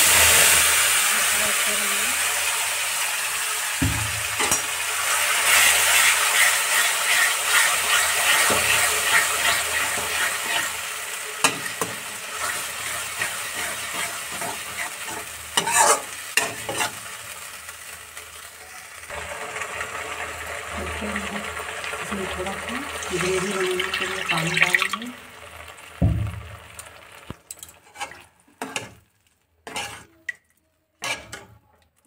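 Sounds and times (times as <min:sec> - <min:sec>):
paste sizzling in hot oil: 0:00.0 - 0:30.3
spatula scraping metal pan: 0:05.4 - 0:10.8, 0:11.4 - 0:17.0, 0:27.8 - 0:29.0, 0:29.6 - 0:30.2, 0:31.0 - 0:31.6.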